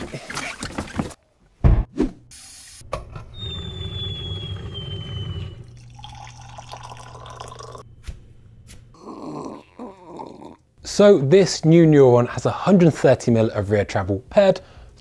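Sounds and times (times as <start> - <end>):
drinks machine humming: 2.9 - 8.6
liquid pouring into a mug: 5.6 - 7.8.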